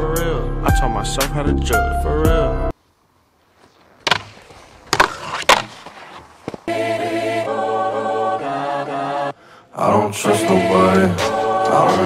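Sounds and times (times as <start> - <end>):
snowboard scraping over snow: 3.5 - 6.8
music with sung chords: 6.7 - 12.0.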